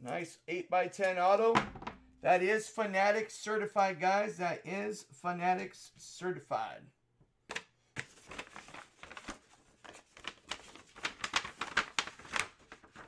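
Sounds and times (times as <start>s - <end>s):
paper envelope rustling: 8.0s - 13.0s.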